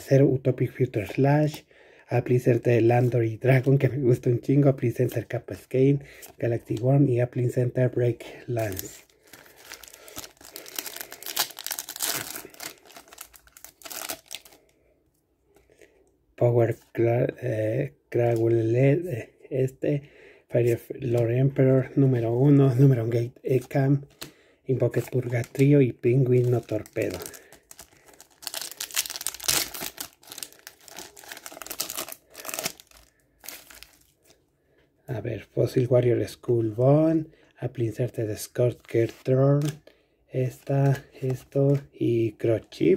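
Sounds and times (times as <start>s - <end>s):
foil wrapper tearing and crinkling: 8.6s - 14.6s, 26.3s - 34.2s.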